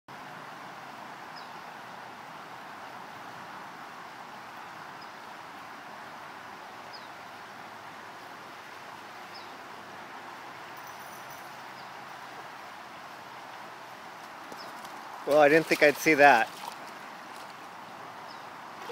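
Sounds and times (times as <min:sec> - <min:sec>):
creek water rushing over rocks: 0:00.1 - 0:18.9.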